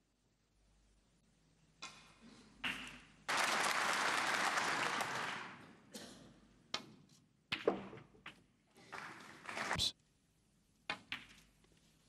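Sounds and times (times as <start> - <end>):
audience applauding: 3.3 - 5.7, 8.8 - 9.8.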